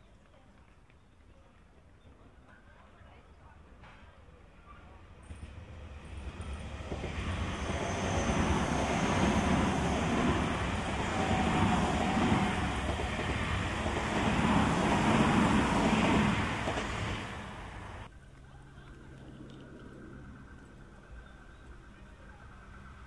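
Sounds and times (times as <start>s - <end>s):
electric train passing: 4.2s - 18.3s, 19.6s - 23.0s.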